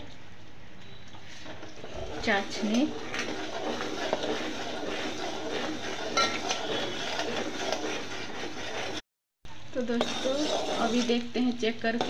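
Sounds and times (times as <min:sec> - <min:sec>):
metal spoon scraping a pot: 0:01.3 - 0:09.0, 0:09.8 - 0:11.3
syrup boiling in a pot: 0:01.3 - 0:12.0.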